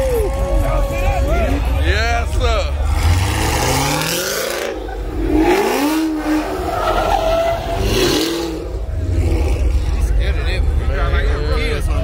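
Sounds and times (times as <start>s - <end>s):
car engine revving: 1.6s - 12.0s
tyres squealing: 2.9s - 8.8s.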